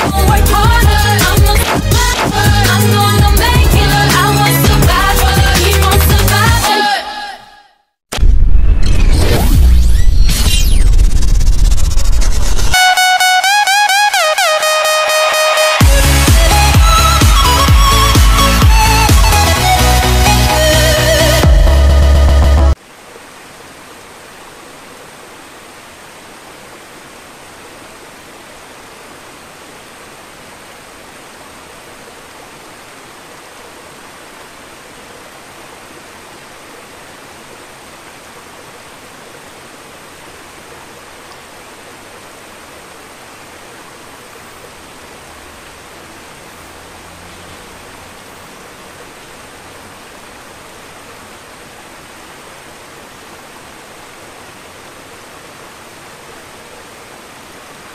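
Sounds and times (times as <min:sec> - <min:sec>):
aquarium water rushing: 0:22.7 - 0:57.9.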